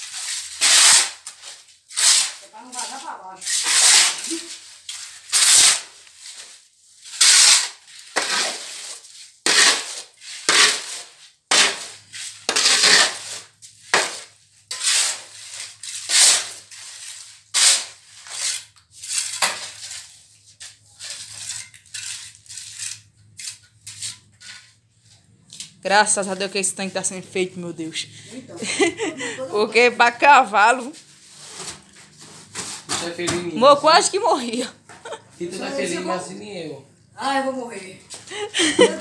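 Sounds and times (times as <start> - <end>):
trowel scraping wet mortar: 0.0 - 24.8.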